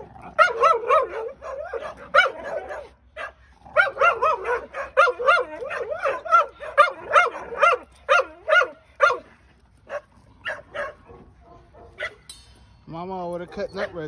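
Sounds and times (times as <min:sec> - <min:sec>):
dogs play-barking: 0:00.0 - 0:12.3.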